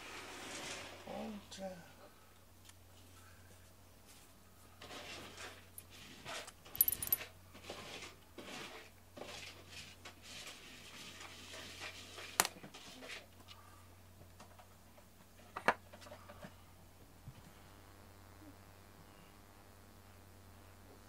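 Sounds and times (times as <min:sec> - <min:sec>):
metal name tag clinking: 0:06.8 - 0:07.2.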